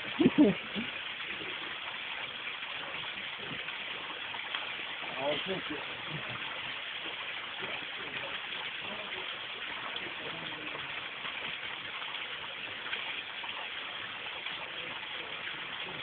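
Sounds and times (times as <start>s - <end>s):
running water: 0.0s - 16.0s.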